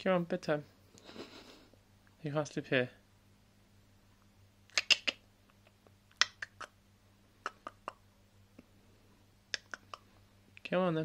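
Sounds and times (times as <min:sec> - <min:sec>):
faint steady hum: 0:00.0 - 0:11.0
person clicking tongue: 0:04.7 - 0:06.8, 0:07.4 - 0:08.0, 0:09.5 - 0:10.1.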